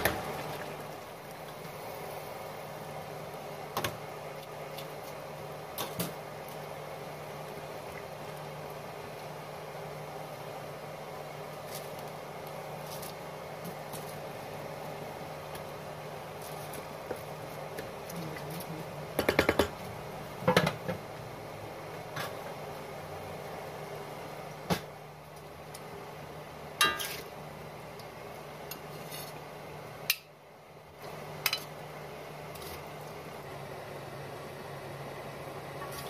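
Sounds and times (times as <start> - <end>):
metal utensils clinking on pots: 26.8 - 27.3.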